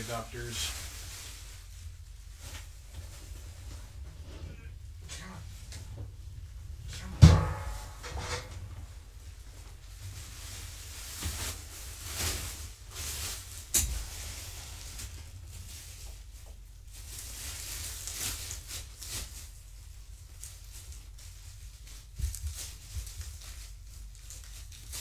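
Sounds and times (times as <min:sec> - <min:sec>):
steady low hum: 0:00.0 - 0:24.8
fabric rustling and handling: 0:07.4 - 0:19.7.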